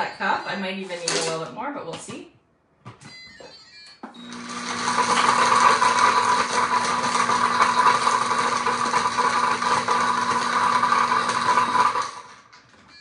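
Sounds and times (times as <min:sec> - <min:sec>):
blender crushing ice: 0:04.2 - 0:12.5.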